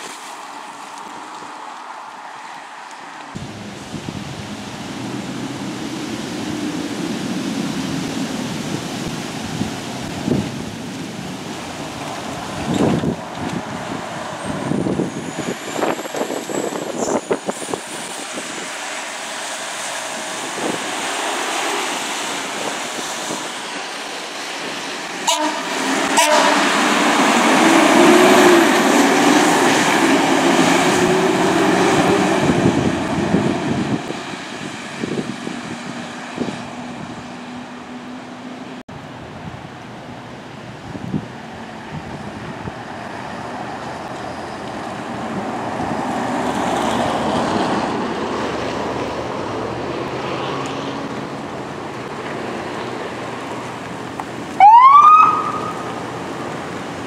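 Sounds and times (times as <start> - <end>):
engine and tyre noise: 0.0 - 57.0
fire engine air horn blast: 25.2 - 26.8, 54.6 - 55.8.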